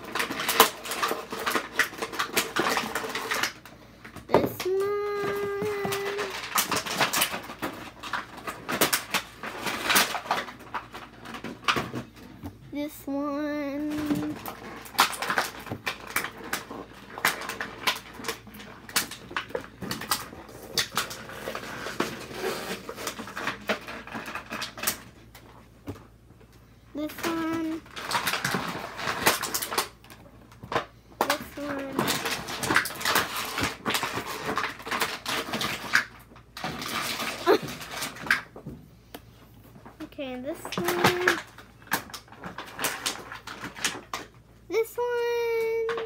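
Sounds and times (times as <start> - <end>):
plastic packaging crinkling and clicking: 0.0 - 12.4, 13.4 - 44.4.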